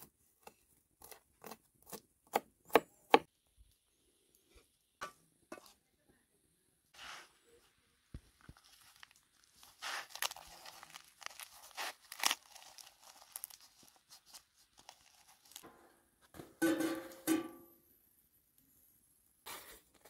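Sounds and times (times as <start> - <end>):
tearing and crackling: 8.4 - 15.6.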